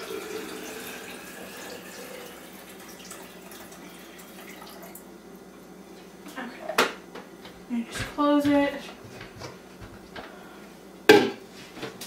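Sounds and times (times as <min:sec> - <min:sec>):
water pouring into reservoir: 0:00.0 - 0:05.0.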